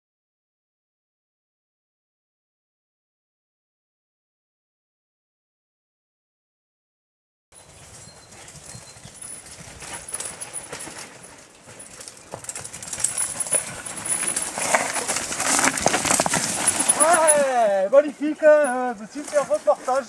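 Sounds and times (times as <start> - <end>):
bike clattering over rocks: 8.5 - 20.0.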